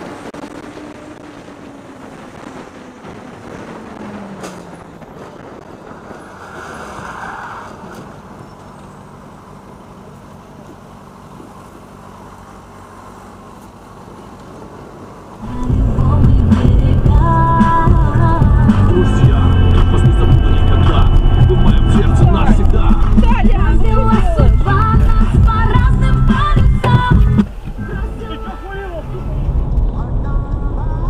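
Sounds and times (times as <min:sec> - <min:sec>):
wind noise on helmet: 0:00.0 - 0:07.0
engines idling: 0:00.0 - 0:31.0
traffic noise: 0:00.0 - 0:31.0.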